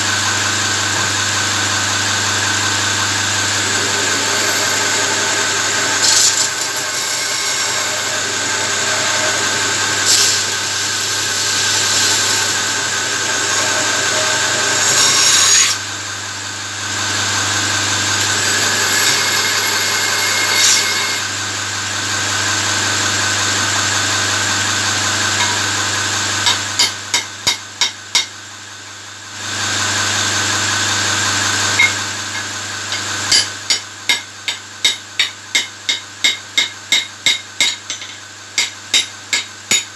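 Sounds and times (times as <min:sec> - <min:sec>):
electric motor humming: 0:00.0 - 0:26.6
steel grinding on abrasive belt: 0:02.7 - 0:15.8, 0:16.9 - 0:21.4, 0:30.6 - 0:39.9.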